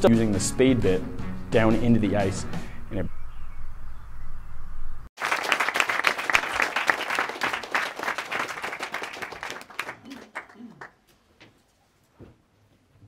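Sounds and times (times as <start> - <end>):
audience applause: 5.2 - 11.0.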